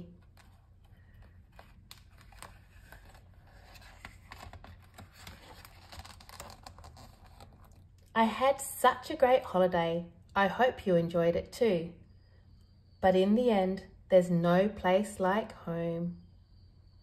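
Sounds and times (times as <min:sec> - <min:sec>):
book page turning: 0:00.0 - 0:08.0.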